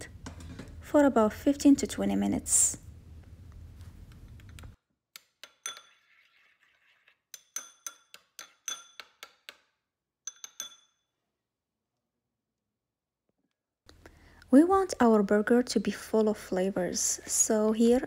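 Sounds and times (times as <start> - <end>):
metal spoon clinking ceramic bowl: 5.4 - 6.3, 7.3 - 9.2, 10.2 - 11.0.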